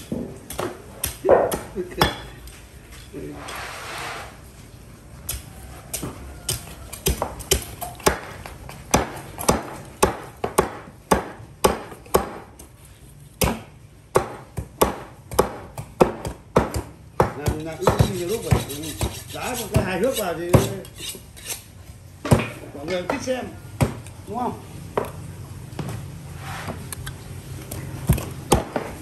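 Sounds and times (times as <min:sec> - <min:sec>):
cleaver chopping on wooden block: 0:05.3 - 0:12.5, 0:13.4 - 0:20.8, 0:28.1 - 0:29.0.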